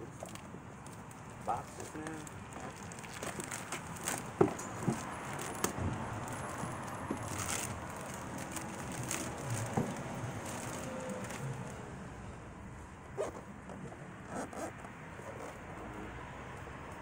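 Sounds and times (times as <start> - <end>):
plastic wrapping rustling: 0.0 - 11.8.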